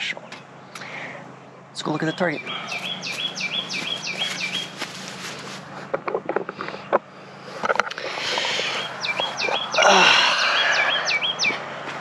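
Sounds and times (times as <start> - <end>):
rustling against microphone: 2.6 - 9.8.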